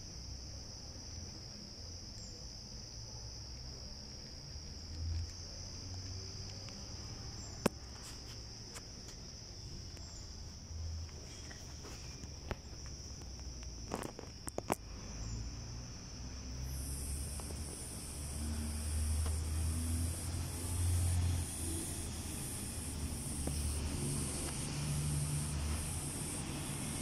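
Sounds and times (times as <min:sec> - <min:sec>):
crickets chirring: 0:00.0 - 0:27.0
steady high hiss: 0:07.0 - 0:27.0.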